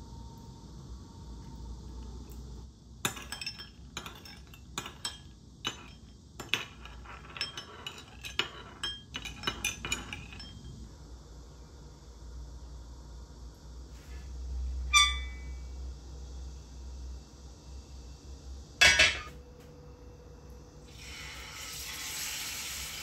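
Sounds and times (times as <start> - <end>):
metal spoon clinking in a bowl: 3.0 - 10.8, 18.8 - 19.3.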